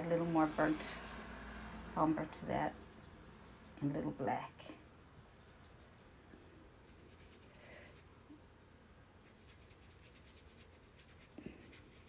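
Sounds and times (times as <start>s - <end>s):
paintbrush dabbing on canvas: 9.2s - 12.0s.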